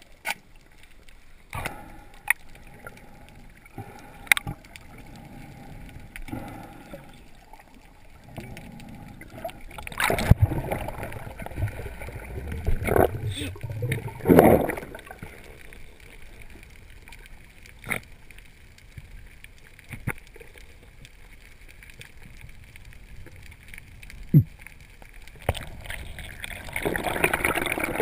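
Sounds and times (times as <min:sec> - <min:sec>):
low underwater hiss: 0:00.0 - 0:28.0
rush of water noise: 0:25.4 - 0:28.0.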